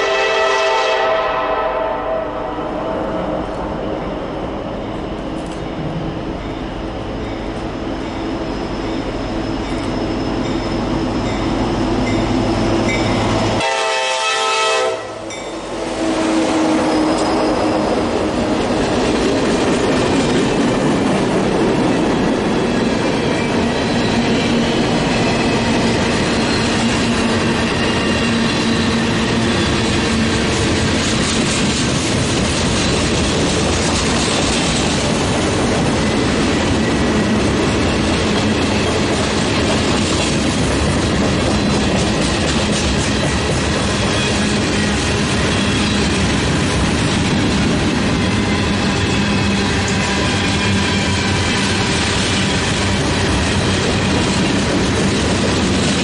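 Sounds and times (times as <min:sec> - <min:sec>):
train horn: 0:00.0 - 0:02.9, 0:13.6 - 0:17.2
freight train wheels clattering: 0:16.5 - 0:56.0.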